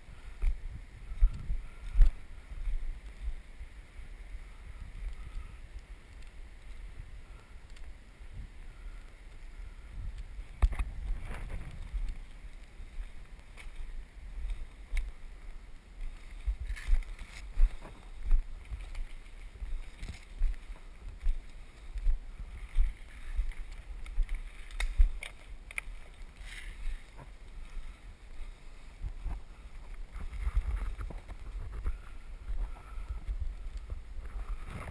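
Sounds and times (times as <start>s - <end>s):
leaves and twigs crackling: 0.0s - 34.9s
wind rumble on microphone: 0.0s - 34.9s
footsteps through undergrowth: 9.2s - 34.9s.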